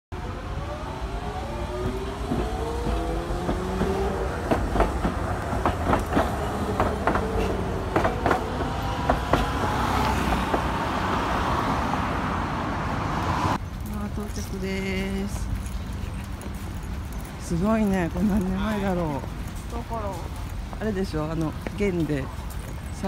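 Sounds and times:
tram rumble and motor whine: 0:00.2 - 0:15.5
wheels clacking over rail joints: 0:01.4 - 0:11.4.

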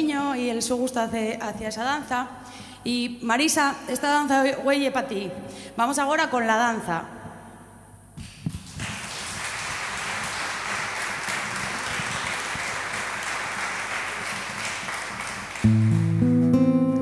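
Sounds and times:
audience applauding: 0:08.6 - 0:16.0.

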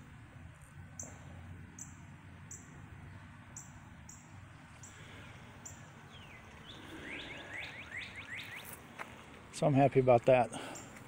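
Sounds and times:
high bird chirps: 0:01.8 - 0:08.8.

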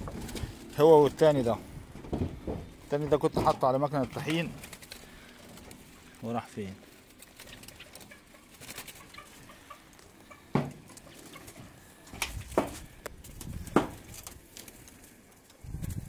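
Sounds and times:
low rumbling: 0:00.0 - 0:06.2.

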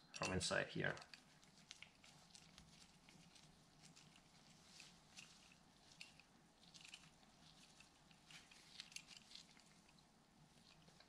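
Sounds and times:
small metal parts clicking: 0:00.0 - 0:10.0.

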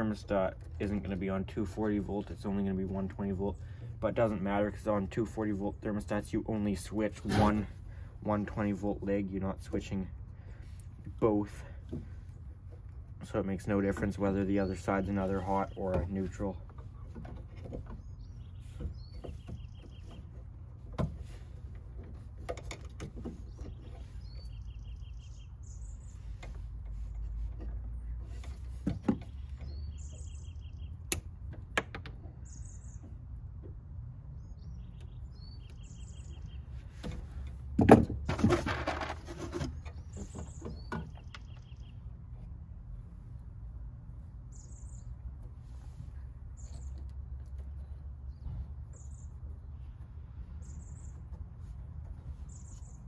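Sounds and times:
small birds chirping: 0:00.0 - 0:37.8, 0:39.3 - 0:53.0
clattering rustle: 0:36.9 - 0:41.3.

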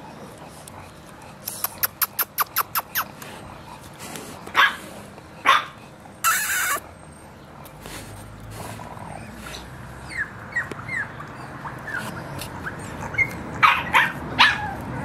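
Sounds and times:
puppies whimpering and yipping: 0:06.0 - 0:07.3, 0:10.0 - 0:15.0.

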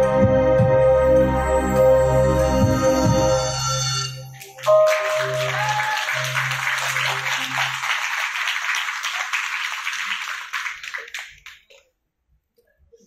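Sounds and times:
audience applauding: 0:04.3 - 0:11.8.

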